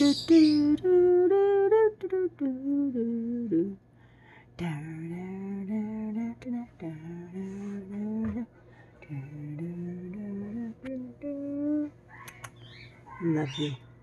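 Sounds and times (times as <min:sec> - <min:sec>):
person humming a slow tune: 0:00.0 - 0:03.8, 0:04.6 - 0:12.0.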